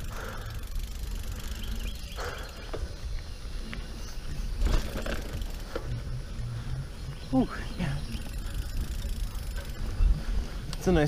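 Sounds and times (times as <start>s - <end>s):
bike frame rattling: 0.0s - 3.0s, 4.2s - 6.1s, 7.5s - 11.0s
bike clicks and knocks: 0.0s - 3.9s, 4.5s - 6.0s
bike tyres on dirt: 0.0s - 11.0s.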